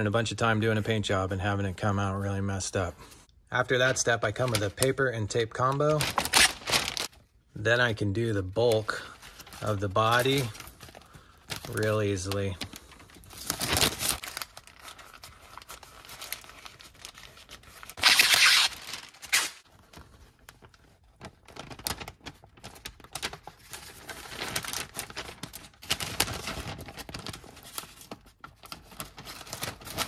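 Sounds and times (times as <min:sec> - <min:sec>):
masking paper crinkling: 0:03.6 - 0:30.0
masking tape tearing: 0:06.1 - 0:07.1, 0:17.9 - 0:19.6.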